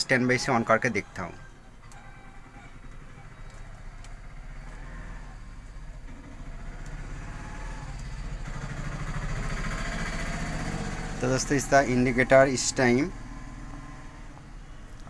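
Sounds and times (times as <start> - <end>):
faint clicks: 2.9 - 4.8.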